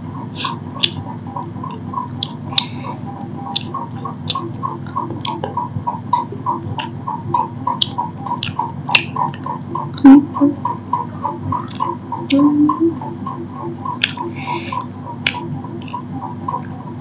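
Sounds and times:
low hum: 1.4s - 14.9s.

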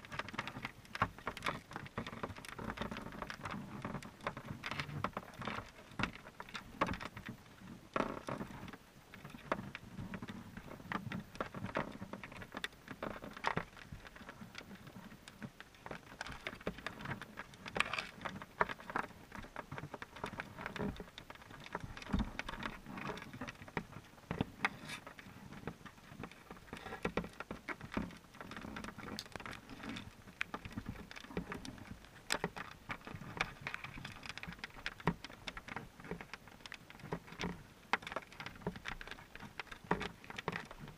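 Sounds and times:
underwater clicking and tapping: 0.0s - 40.9s.

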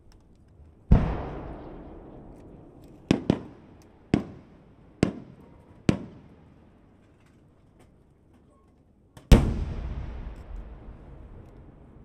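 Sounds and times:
firework bangs: 0.9s - 6.4s, 9.3s - 12.0s.

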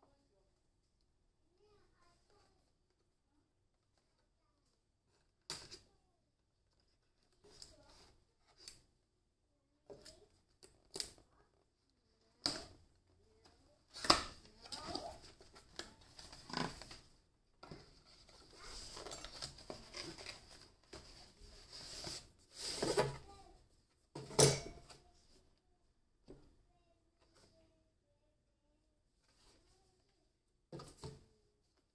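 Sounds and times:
cardboard scraping and rustling: 13.9s - 17.1s, 17.8s - 23.3s.

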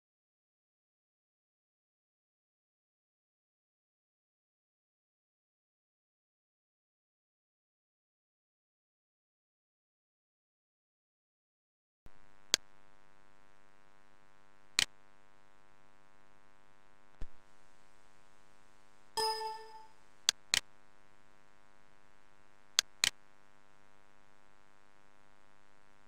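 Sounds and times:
short electronic chime: 19.2s - 19.9s.

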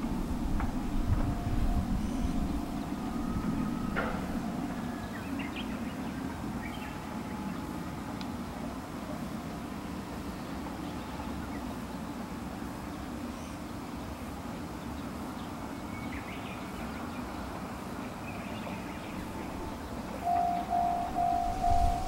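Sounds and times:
low outdoor rumble: 0.0s - 9.2s, 18.7s - 22.0s
faint bird chirps: 1.6s - 6.0s.

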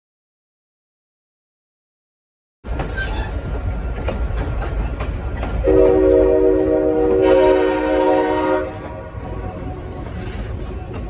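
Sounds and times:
train wheels clicking over rail joints: 2.7s - 11.0s
train air horn blast: 5.6s - 9.3s.

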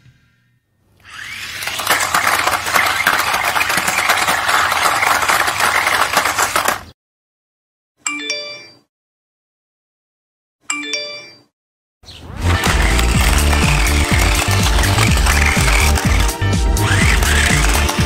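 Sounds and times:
toy car rattling on concrete: 1.0s - 6.9s, 12.5s - 18.0s.

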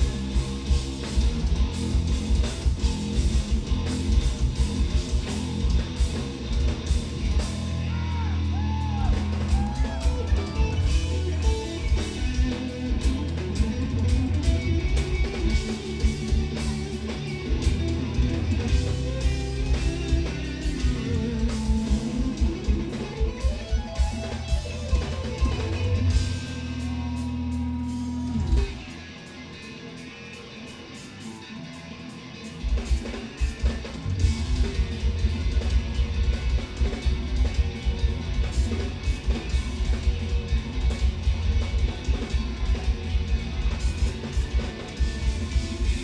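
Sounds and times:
dense drumming: 0.0s - 7.8s
electric guitars pitch-bending: 0.0s - 46.0s.

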